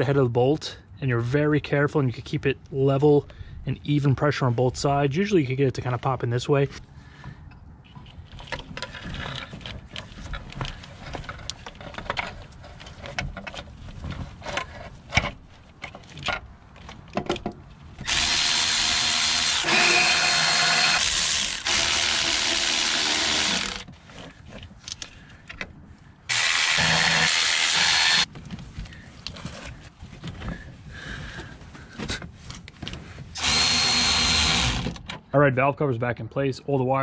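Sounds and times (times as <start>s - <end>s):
metal parts clicking and knocking: 7.9s - 18.5s
power tool driving bolts: 18.0s - 23.9s, 26.3s - 28.3s, 33.4s - 35.1s.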